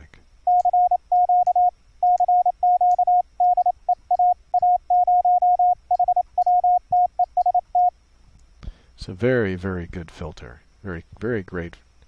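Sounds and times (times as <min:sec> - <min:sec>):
morse code tone: 0:00.5 - 0:07.9.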